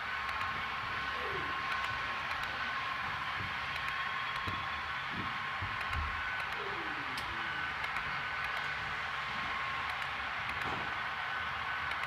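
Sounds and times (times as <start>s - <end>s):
model train wheels rushing on rails: 0.0s - 12.0s.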